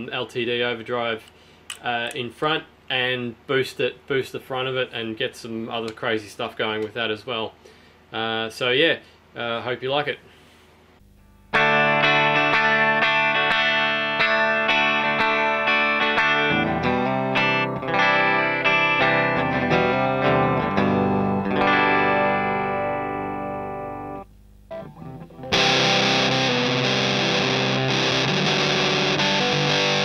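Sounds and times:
distorted fuzz electric guitar: 0:11.0 - 0:30.0
clean electric guitar chords: 0:11.1 - 0:30.0.

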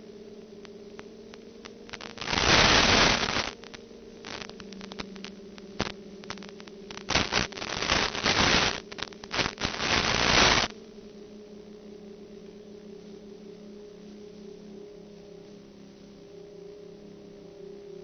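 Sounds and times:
radio static hiss: 0:00.0 - 0:10.8
low hum: 0:00.0 - 0:18.0.

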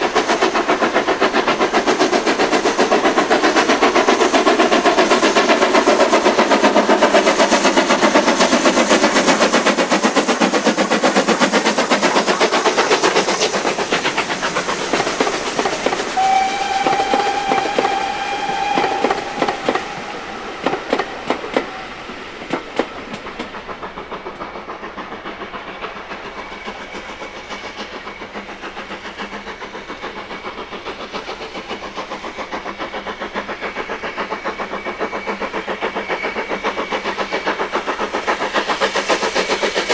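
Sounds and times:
train clattering past: 0:00.0 - 0:39.9
steam whistle: 0:16.0 - 0:23.1.

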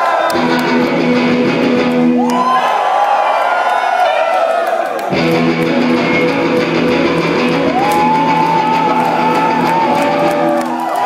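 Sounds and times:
rock band playing live: 0:00.3 - 0:02.2, 0:05.1 - 0:10.5.

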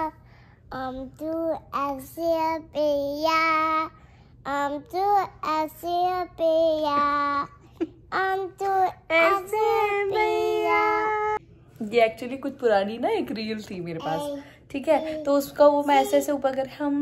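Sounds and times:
girl singing: 0:00.0 - 0:11.4.

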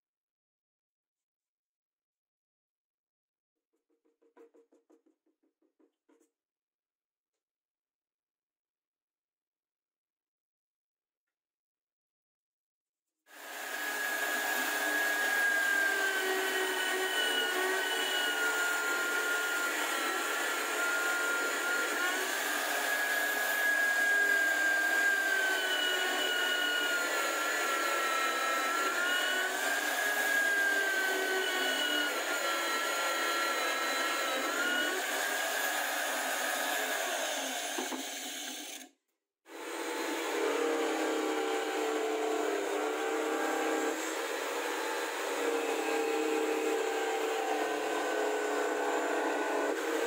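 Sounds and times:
drill press motor whine: 0:13.4 - 0:38.9, 0:39.6 - 0:50.0.

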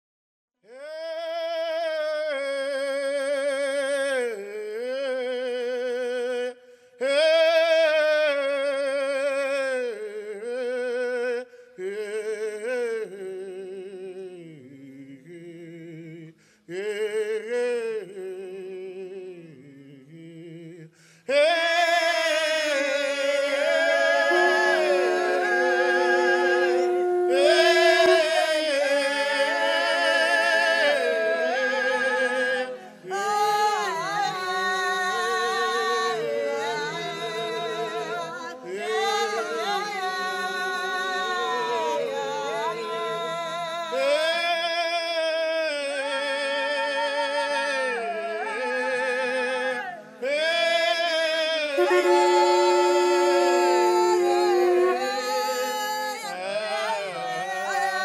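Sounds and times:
solo singing with vibrato: 0:21.3 - 0:44.4, 0:51.7 - 0:58.0
low held drone note: 0:24.0 - 0:28.8, 0:51.8 - 0:55.5.

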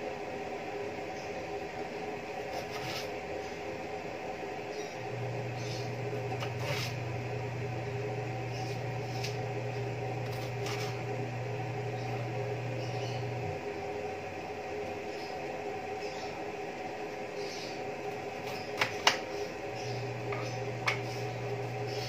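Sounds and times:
low hum: 0:00.0 - 0:22.0
gas burner hissing: 0:04.6 - 0:15.1, 0:15.7 - 0:22.0.

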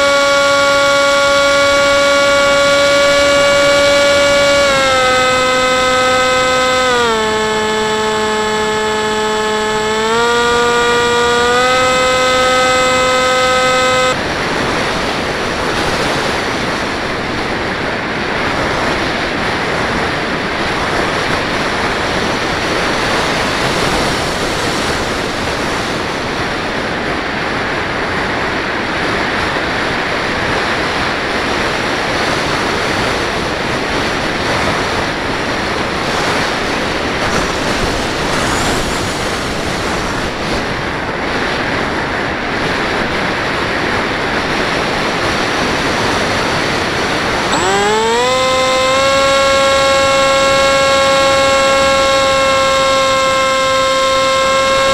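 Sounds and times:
propeller motor whining: 0:00.0 - 0:20.1, 0:34.0 - 0:40.8, 0:44.8 - 0:54.9.

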